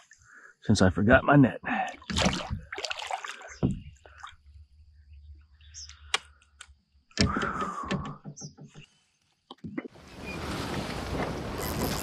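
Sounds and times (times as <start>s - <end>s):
water splashing: 1.9s - 4.5s.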